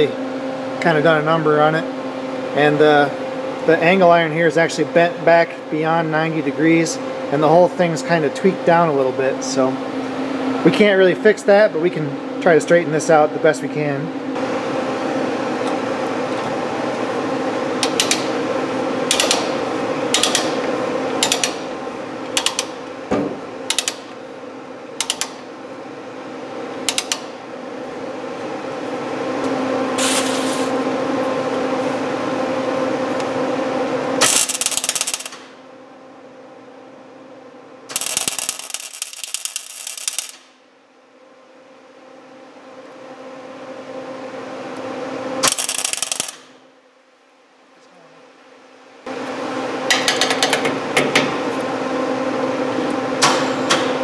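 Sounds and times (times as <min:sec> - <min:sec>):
steady hum: 0:00.0 - 0:54.0
ratchet pawl clicking: 0:19.1 - 0:19.4, 0:37.9 - 0:40.4, 0:45.4 - 0:46.4
welder arc crackle: 0:34.2 - 0:35.5, 0:37.9 - 0:40.6, 0:45.4 - 0:46.5.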